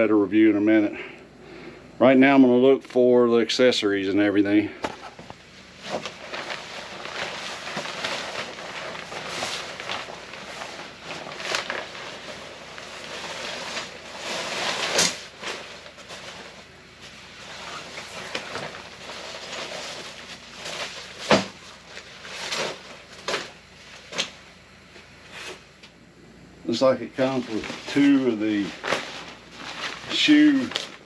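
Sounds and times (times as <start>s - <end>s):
tent fabric and plastic rustling: 5.0s - 24.5s, 26.8s - 31.0s.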